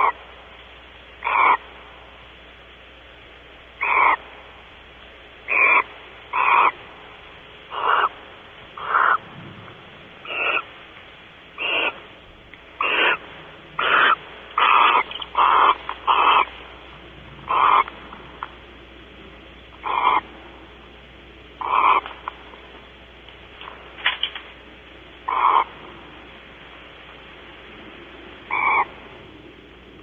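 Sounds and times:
owl rasping hiss calls: 0:00.0 - 0:00.3, 0:01.2 - 0:01.8, 0:03.8 - 0:04.4, 0:05.4 - 0:06.8, 0:07.6 - 0:09.2, 0:10.2 - 0:10.8, 0:11.5 - 0:18.6, 0:19.7 - 0:20.4, 0:21.6 - 0:22.4, 0:25.2 - 0:25.9, 0:28.0 - 0:29.2.

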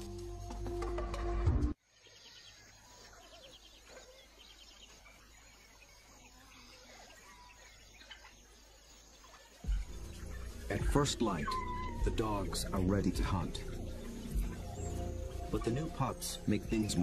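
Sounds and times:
background music: 0:00.0 - 0:01.8, 0:09.6 - 0:17.0
bird chirps: 0:01.8 - 0:17.0.

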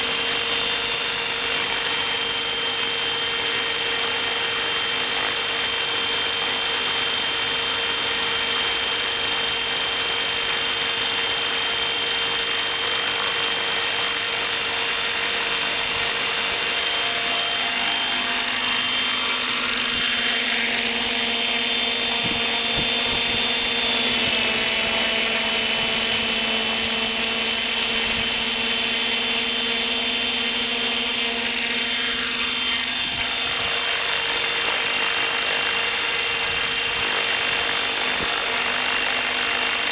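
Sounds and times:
electric motor whine: 0:00.0 - 0:39.9
rotor blades hissing: 0:13.0 - 0:29.5.

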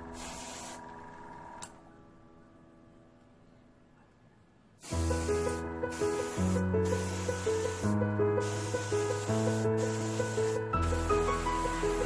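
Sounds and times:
airbrush spraying hiss: 0:00.0 - 0:00.9, 0:04.8 - 0:12.0
background music: 0:04.8 - 0:12.0.

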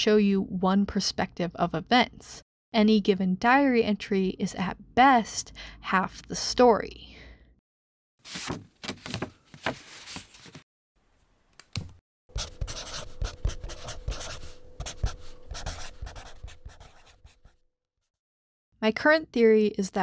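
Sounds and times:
faint steady hum: 0:12.3 - 0:17.0
pen scribbling on paper: 0:12.4 - 0:17.6.

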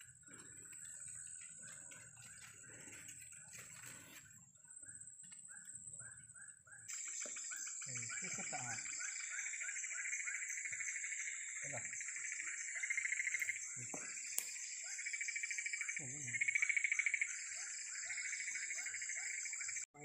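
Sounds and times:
frog calls: 0:06.7 - 0:19.8
high pulsing insect trill: 0:06.9 - 0:19.9.

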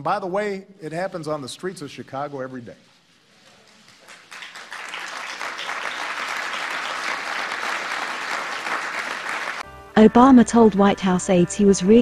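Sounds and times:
audience applauding: 0:03.5 - 0:09.6.

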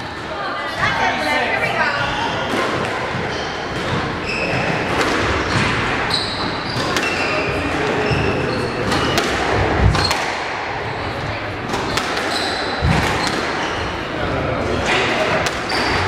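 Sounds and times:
shoes squeaking on wooden floor: 0:03.1 - 0:09.2, 0:11.8 - 0:14.1
squash ball knocks: 0:08.8 - 0:10.7, 0:11.6 - 0:13.6.

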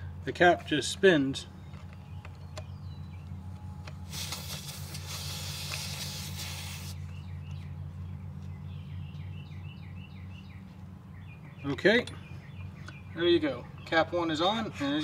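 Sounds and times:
steady low hum: 0:00.0 - 0:15.0
bird chirping: 0:01.4 - 0:03.8, 0:05.9 - 0:15.0
air hissing from tire valve: 0:04.0 - 0:07.1.

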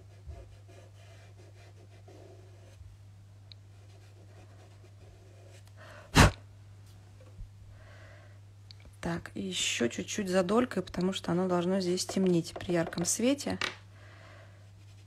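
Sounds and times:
faint steady hum: 0:00.0 - 0:15.0
burst of breath: 0:07.8 - 0:08.4, 0:14.0 - 0:14.6.

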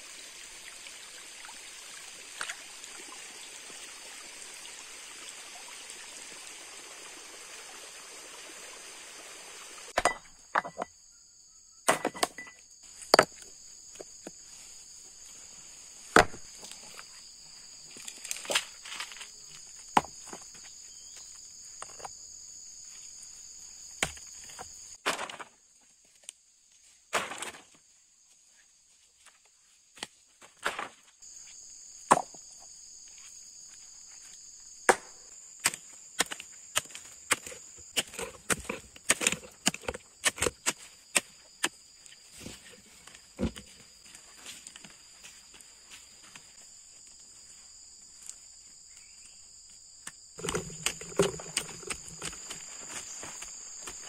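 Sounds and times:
high insect chorus: 0:00.0 - 0:54.0
hoe chopping into soil: 0:34.9 - 0:41.8
rocks knocking: 0:50.4 - 0:54.0.

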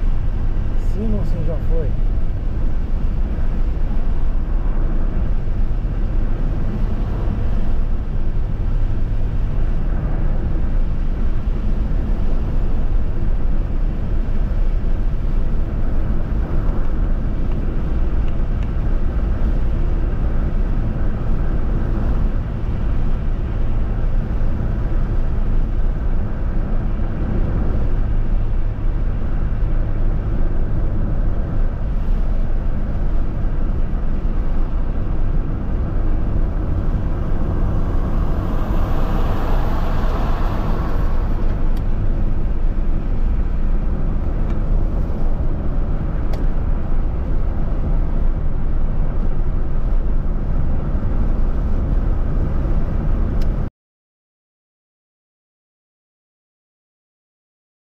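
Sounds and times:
car road and engine noise: 0:00.0 - 0:53.7
rushing noise: 0:35.1 - 0:43.4.

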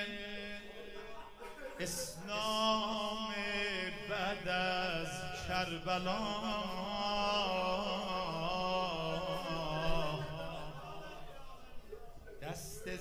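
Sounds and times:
man chanting into a microphone: 0:00.0 - 0:11.7, 0:12.3 - 0:13.0.

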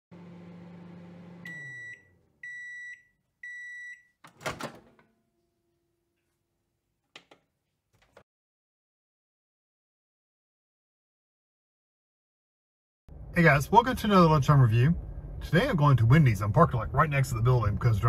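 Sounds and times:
microwave oven humming: 0:00.1 - 0:02.8.

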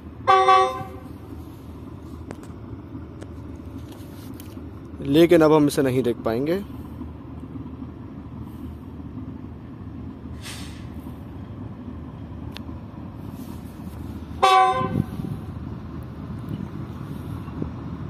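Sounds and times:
diesel locomotive engine rumble: 0:00.0 - 0:18.0
locomotive air horn blast: 0:00.2 - 0:01.2, 0:10.4 - 0:10.9, 0:14.3 - 0:15.5.

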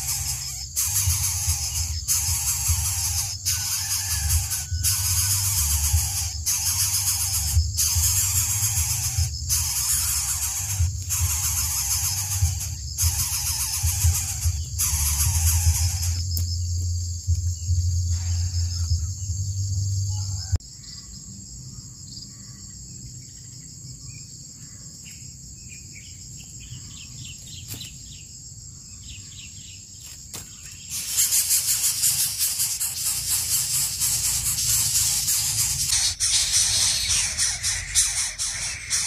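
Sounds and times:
low hum: 0:00.0 - 0:20.4
high-pitched insect drone: 0:00.0 - 0:39.0
rough rasping noise: 0:30.9 - 0:39.0.

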